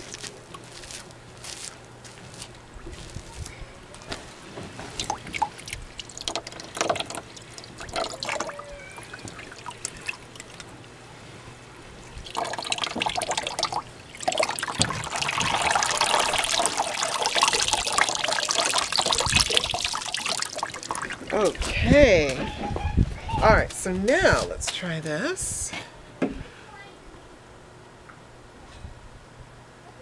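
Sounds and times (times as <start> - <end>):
water pouring into tub: 5.0 - 10.6, 12.2 - 21.6.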